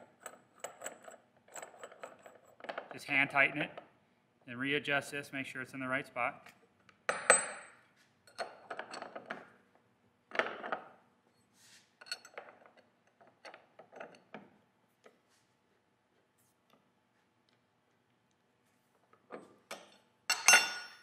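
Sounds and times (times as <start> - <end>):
wrench clinking on metal nut: 8.3 - 9.2, 12.0 - 14.3, 19.7 - 21.0.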